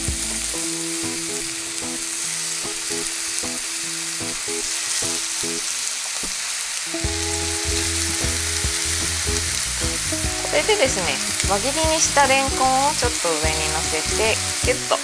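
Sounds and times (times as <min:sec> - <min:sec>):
patties sizzling in oil: 0:00.0 - 0:15.0
light background music: 0:06.9 - 0:15.0.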